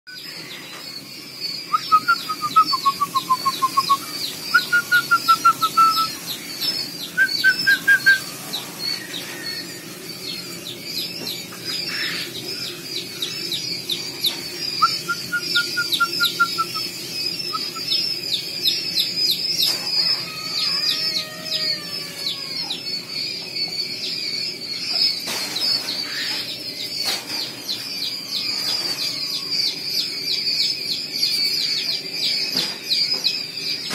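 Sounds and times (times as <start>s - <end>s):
quail chicks peeping: 0.1s - 33.9s.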